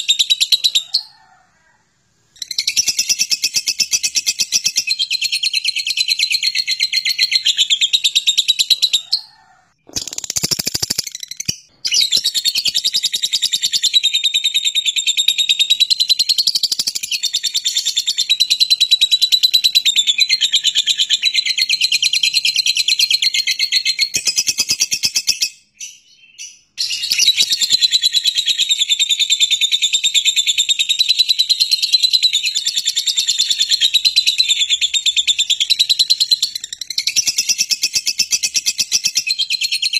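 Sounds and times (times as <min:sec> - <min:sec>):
lovebird shrill chatter: 0:09.9 - 0:13.9, 0:26.8 - 0:28.2.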